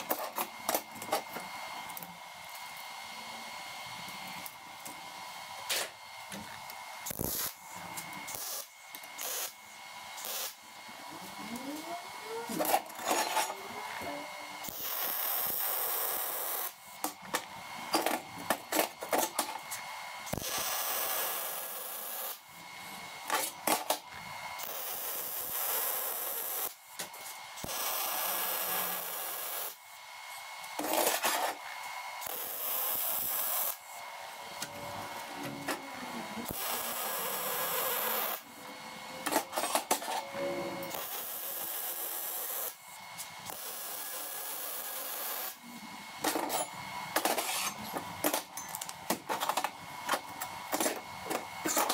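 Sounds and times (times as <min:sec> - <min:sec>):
welder crackling hiss: 0:07.0 - 0:07.7, 0:08.3 - 0:09.6, 0:10.2 - 0:10.6, 0:14.6 - 0:16.8, 0:20.2 - 0:22.4, 0:24.6 - 0:29.8, 0:32.2 - 0:34.0, 0:36.4 - 0:38.4, 0:40.9 - 0:42.8, 0:43.5 - 0:45.6.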